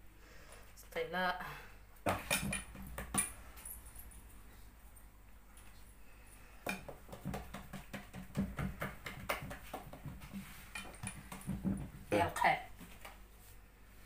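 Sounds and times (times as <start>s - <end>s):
low steady hum: 0.0s - 14.0s
kitchen clicks and knocks: 2.1s - 3.4s.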